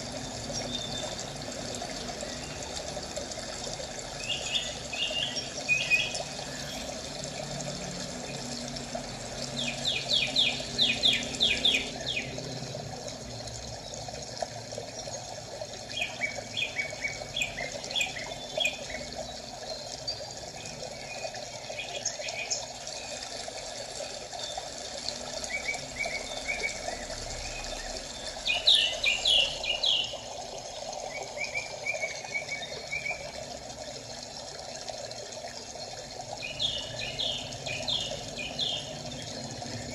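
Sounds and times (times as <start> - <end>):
running water rushing: 0.0 - 39.9
small birds chirping: 4.2 - 6.8, 9.5 - 12.6, 15.9 - 23.3, 25.4 - 33.3, 36.4 - 39.9.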